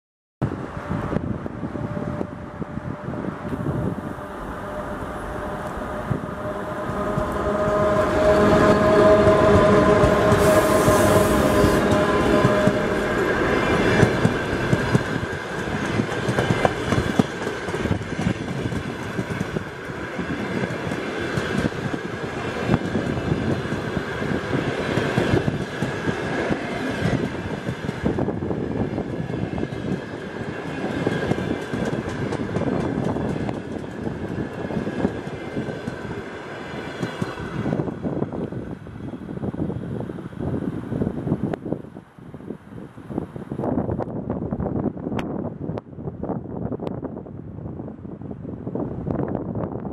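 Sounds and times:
steady high whine: 0.5s - 17.4s
train wheels clattering over rails: 7.1s - 28.4s, 29.0s - 37.6s.

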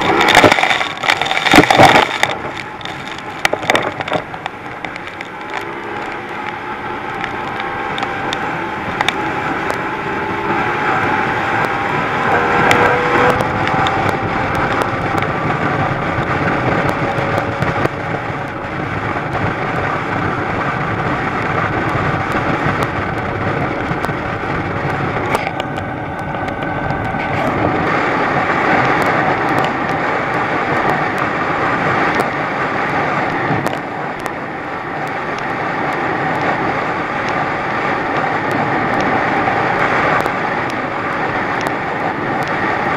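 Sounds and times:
outboard engine running hard: 0.0s - 42.9s
wind and spray rushing: 0.0s - 42.9s.

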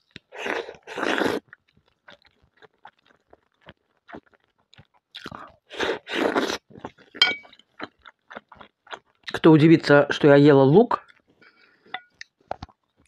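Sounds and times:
wet chewing clicks: 0.1s - 9.4s
short clink: 7.2s - 7.5s.

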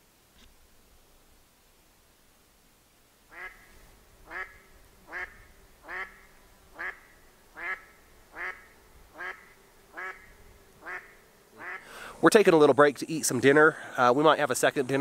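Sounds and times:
duck calling: 3.3s - 12.0s.

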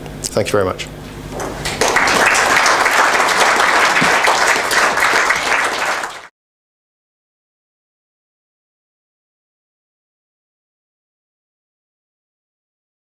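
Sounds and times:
audience applauding: 1.4s - 6.3s.

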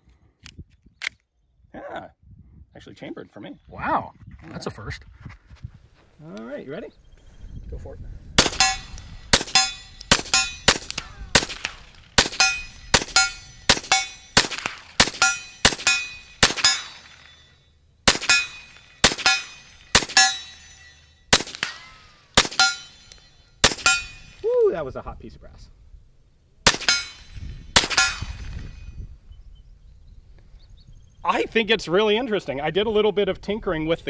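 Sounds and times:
pistol shots fired rapidly: 8.4s - 17.4s, 18.1s - 20.4s, 21.3s - 22.9s, 23.6s - 24.1s, 26.7s - 27.2s, 27.8s - 28.4s
bullet hitting steel target: 8.4s - 17.5s, 18.1s - 24.4s, 26.7s - 29.0s.

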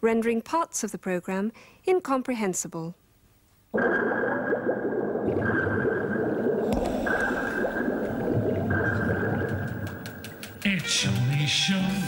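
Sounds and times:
underwater bubbling and gurgling: 3.8s - 10.6s.

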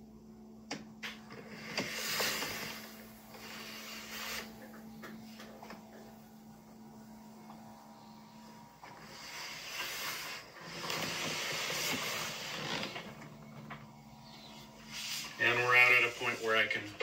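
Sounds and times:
awning motor humming: 1.2s - 16.7s.

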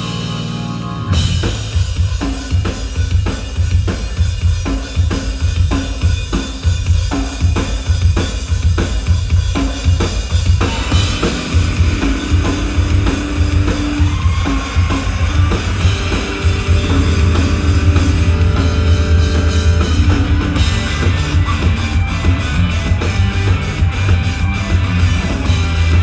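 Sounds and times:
live rock band playing: 0.0s - 26.0s.

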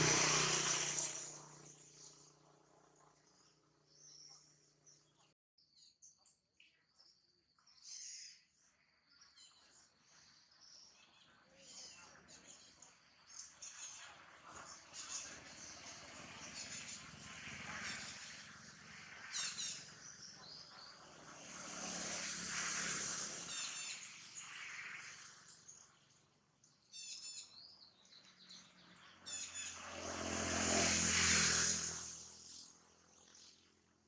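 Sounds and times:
broad rushing noise: 0.0s - 1.8s, 20.9s - 25.4s, 29.6s - 32.7s
outdoor ambience: 0.0s - 34.0s
birds chirping: 23.3s - 29.9s.

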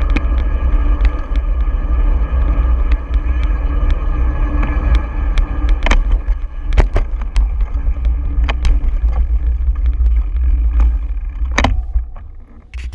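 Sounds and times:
knocks and rattles over bumps: 0.0s - 12.9s
wind buffeting microphone: 0.0s - 12.9s.

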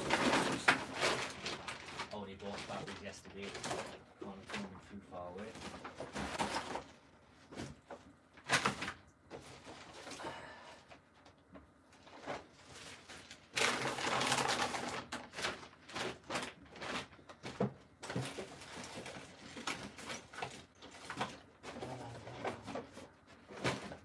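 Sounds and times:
loud rustling: 0.0s - 4.6s
objects clattering and clicking: 0.0s - 4.8s, 5.4s - 10.2s, 11.5s - 24.0s.

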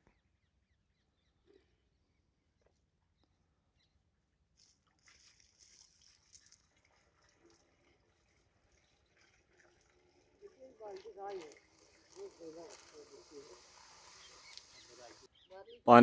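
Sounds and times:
water poured into pipe: 4.6s - 15.3s.

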